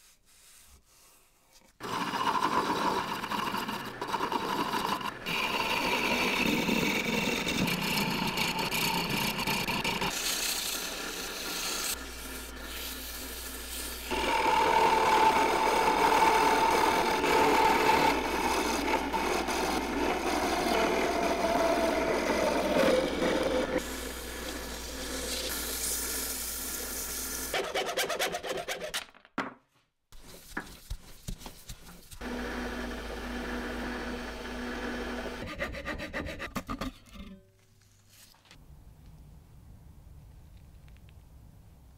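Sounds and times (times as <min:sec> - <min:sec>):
lathe motor whining: 0:01.8 - 0:13.3, 0:14.0 - 0:25.5, 0:32.2 - 0:35.6
lathe tool shaving spinning wood: 0:01.8 - 0:28.8, 0:32.2 - 0:36.4.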